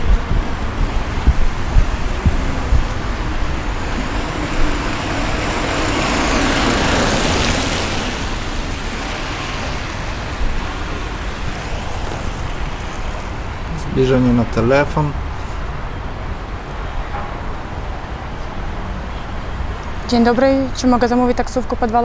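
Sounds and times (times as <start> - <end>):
vehicle passing: 0.0 - 20.8
street traffic: 0.0 - 22.0.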